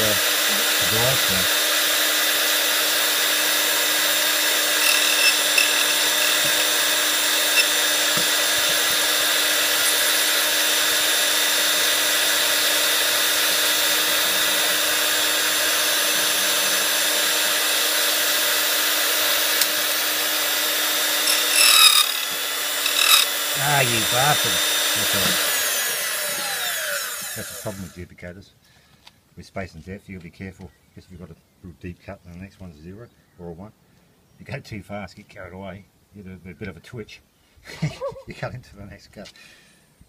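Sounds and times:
key cutting machine humming: 0.0 - 27.7
cutter scraping key: 4.8 - 6.8, 7.4 - 8.8, 21.2 - 24.5.

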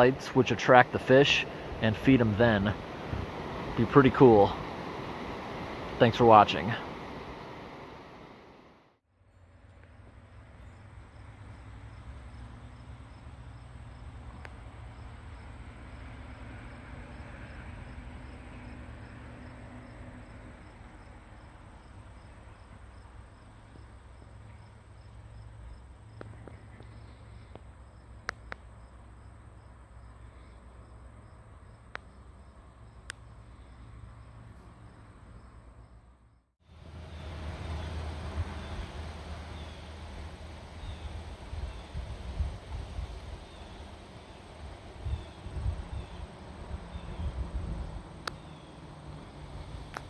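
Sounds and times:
insects chirping: 9.9 - 36.1, 36.8 - 40.0, 42.9 - 50.0
low steady rumble: 19.3 - 50.0.

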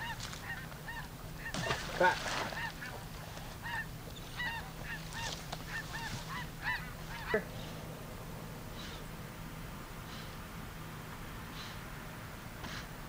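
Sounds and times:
geese honking: 0.0 - 7.9.

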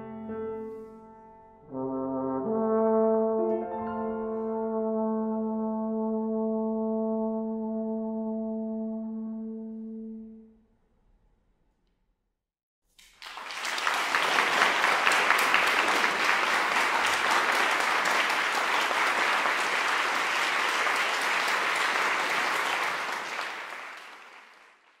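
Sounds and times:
audience applauding: 13.0 - 25.0.

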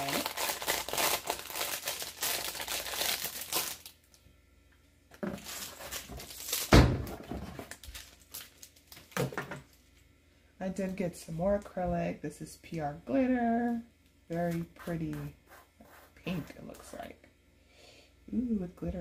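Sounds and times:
plastic bag crinkling: 0.0 - 4.2, 5.2 - 9.8.

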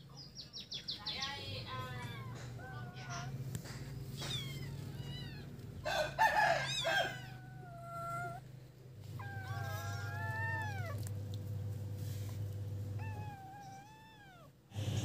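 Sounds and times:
kittens mewing: 1.2 - 15.0
rooster crowing: 5.5 - 8.4, 9.2 - 11.0.

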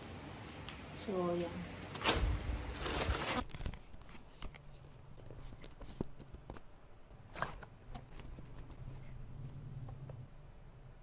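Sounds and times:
cardboard box rustling: 2.8 - 9.5.

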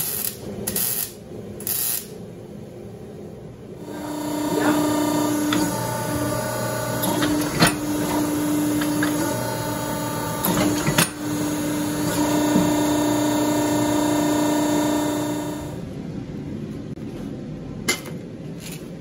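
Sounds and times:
hydraulic press humming: 3.8 - 15.9.

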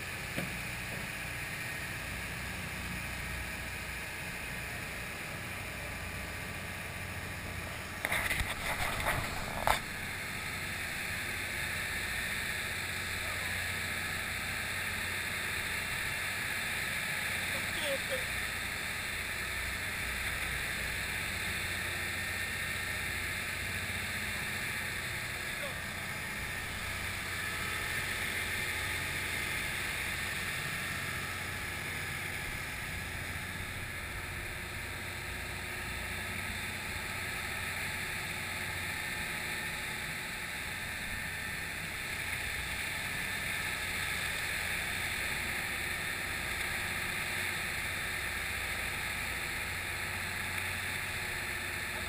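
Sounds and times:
steady low hum: 0.0 - 52.0
water rushing along hull: 10.0 - 52.0.

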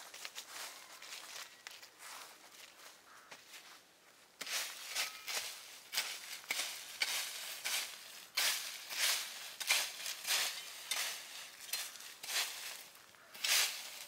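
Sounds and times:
dry leaves crackling: 0.0 - 3.8, 4.4 - 14.0
shovel scraping through leaves and soil: 4.4 - 14.0.

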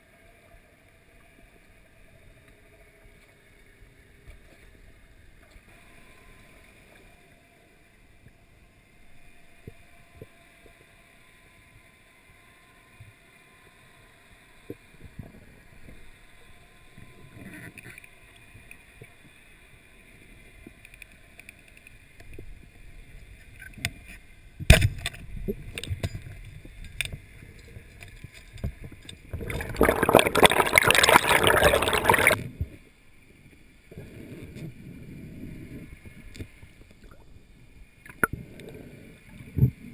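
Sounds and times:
light ticks underwater: 0.0 - 29.6, 32.3 - 39.9
faint underwater water hiss: 0.0 - 39.9
loud rushing water: 29.4 - 32.4.

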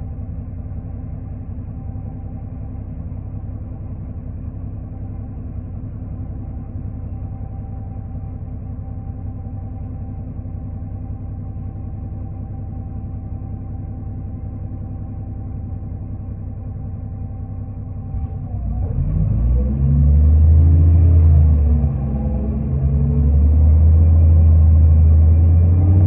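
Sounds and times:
bus diesel engine rumbling: 0.0 - 26.0
bus engine revving up: 18.0 - 26.0.

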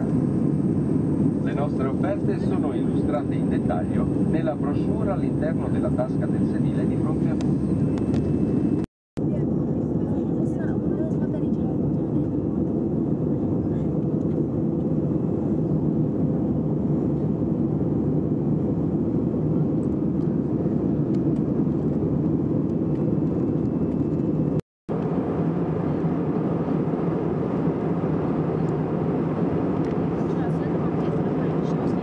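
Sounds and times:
jet engines and airflow rush: 0.0 - 32.0.

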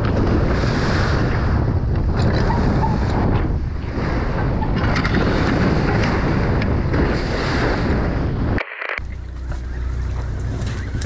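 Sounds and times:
wind buffeting microphone: 0.0 - 11.0
boat engine drone: 9.0 - 11.0.

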